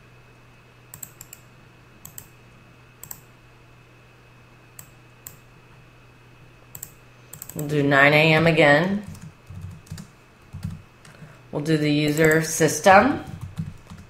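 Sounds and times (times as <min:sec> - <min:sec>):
faint electrical hum: 0:00.0 - 0:14.0
keyboard clicks: 0:00.9 - 0:01.4, 0:02.0 - 0:02.3, 0:03.0 - 0:03.2, 0:06.7 - 0:07.7, 0:09.0 - 0:11.2, 0:12.1 - 0:12.4
mouse clicks: 0:00.9 - 0:02.3, 0:04.8 - 0:05.4, 0:06.7 - 0:07.7.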